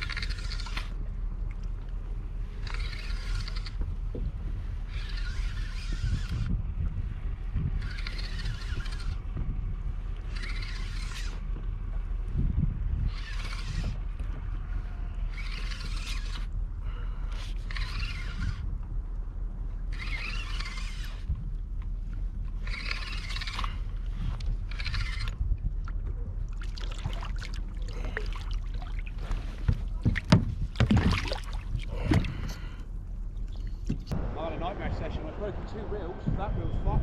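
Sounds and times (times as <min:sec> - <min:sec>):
fishing reel rasping: 0:00.0 - 0:01.0, 0:02.6 - 0:03.8, 0:04.8 - 0:06.5, 0:07.8 - 0:09.2, 0:10.2 - 0:11.5, 0:13.0 - 0:14.0, 0:15.3 - 0:16.5, 0:17.2 - 0:18.6, 0:19.9 - 0:21.3, 0:22.6 - 0:25.4
wind and water rumble: 0:00.0 - 0:37.0.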